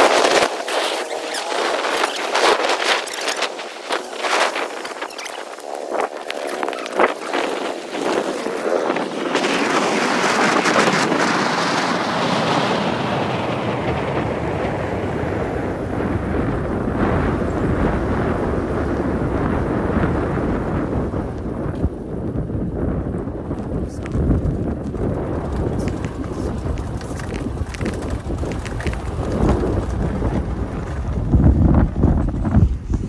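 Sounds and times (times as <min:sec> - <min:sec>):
wind buffeting microphone: 0:00.0 - 0:33.0
low rumble: 0:13.8 - 0:33.0.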